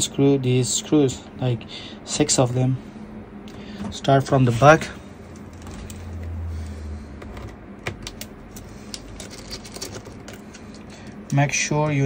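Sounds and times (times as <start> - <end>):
low rumble: 3.0 - 10.2
screwdriver handling noise: 7.2 - 12.0.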